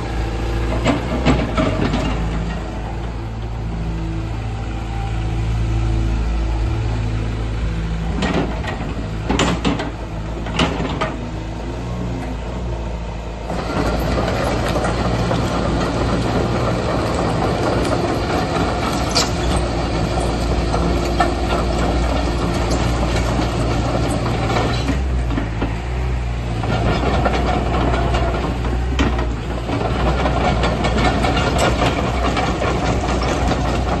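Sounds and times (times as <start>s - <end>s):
diesel engine running: 0.0s - 34.0s
steel track links clanking: 13.5s - 25.8s.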